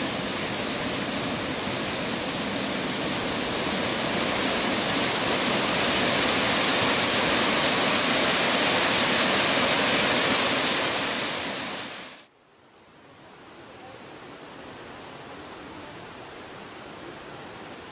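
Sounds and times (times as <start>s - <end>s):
waterfall rushing: 0.0s - 12.3s.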